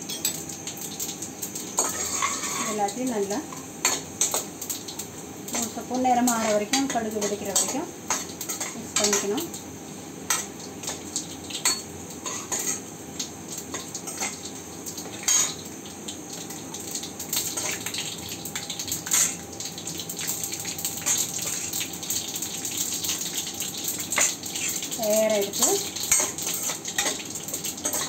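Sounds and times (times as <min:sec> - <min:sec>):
mustard seeds popping in oil: 0:00.0 - 0:09.7, 0:10.3 - 0:28.0
metal spoon scraping a pan: 0:01.8 - 0:02.8, 0:05.6 - 0:09.3, 0:11.6 - 0:12.8.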